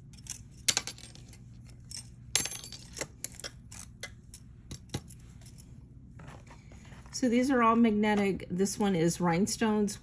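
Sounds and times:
metal jewelry clinking: 0.0s - 5.8s.

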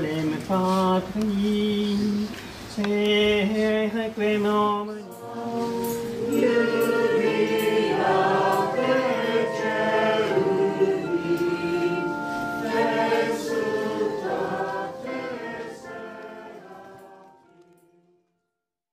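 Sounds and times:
congregation and choir singing a hymn: 4.4s - 18.3s.

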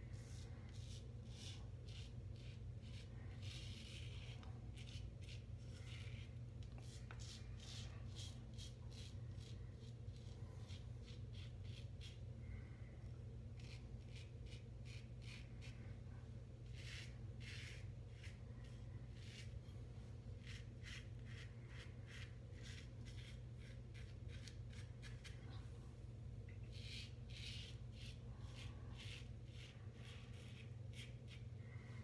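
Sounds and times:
steady low hum: 0.0s - 32.0s
razor scraping stubble: 20.4s - 25.4s.

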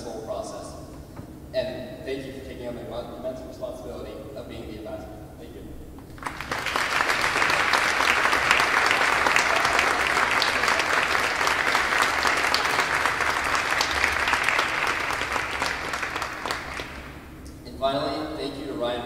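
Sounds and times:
audience applauding: 6.2s - 17.3s.

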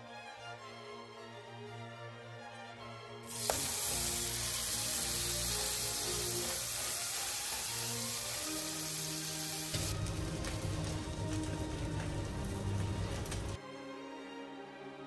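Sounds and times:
background music: 0.0s - 15.0s
patty sizzling in grill pan: 3.3s - 13.6s.

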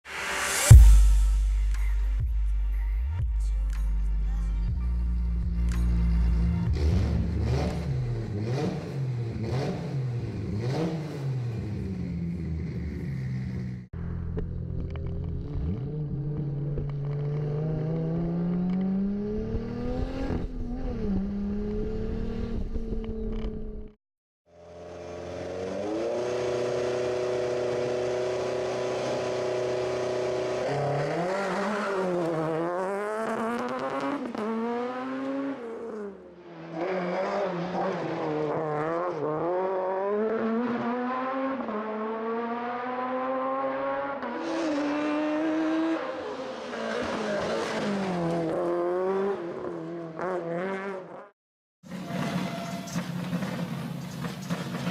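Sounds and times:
car engine accelerating: 3.7s - 51.1s
race car engine revving and accelerating: 6.0s - 13.1s, 14.9s - 23.6s, 24.6s - 51.3s.

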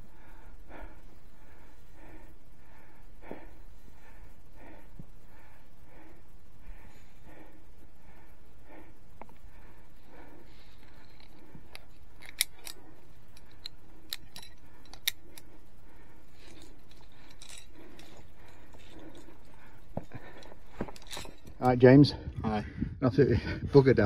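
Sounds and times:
carabiners clinking on steel cable: 10.8s - 15.5s, 16.3s - 21.8s.

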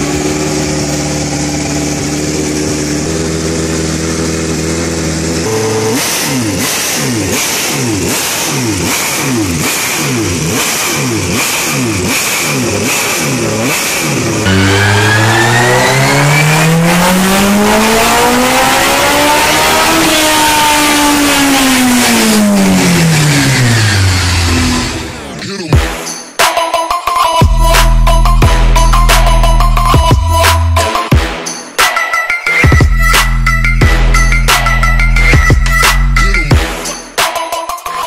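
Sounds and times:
motorcycle engine idling: 0.0s - 13.6s
motorcycle engine revving: 0.0s - 25.4s
motorcycle on dynamometer: 0.0s - 25.4s.

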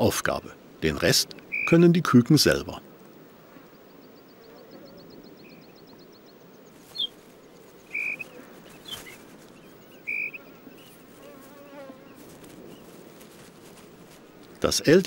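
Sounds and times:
bird calling high notes: 1.4s - 1.9s, 7.8s - 9.1s, 9.8s - 11.0s
faint insect buzz: 3.0s - 14.4s.

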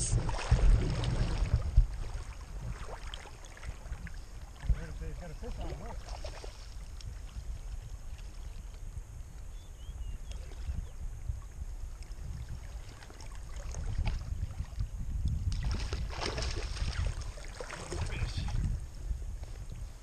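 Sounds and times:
water moving around a boat: 0.0s - 20.0s
wind: 0.0s - 20.0s
fish splashing at the surface: 15.6s - 18.5s.

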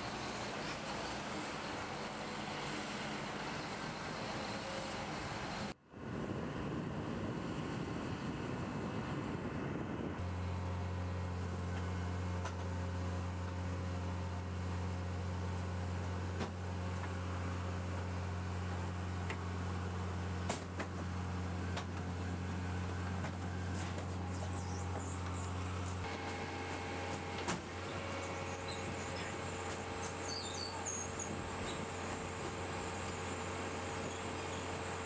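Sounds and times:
cargo loader engine humming: 0.0s - 5.8s, 9.0s - 35.0s
engine and machinery noise: 0.0s - 35.0s.

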